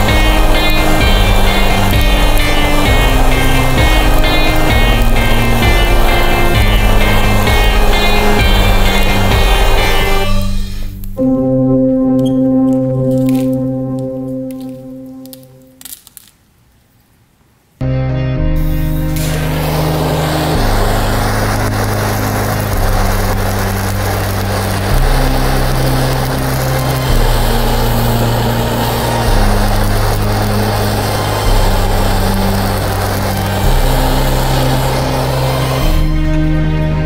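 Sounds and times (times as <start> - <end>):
blow torch flame hissing: 0.0 - 11.2, 18.6 - 36.7
slow background music: 0.0 - 16.3, 17.8 - 37.0.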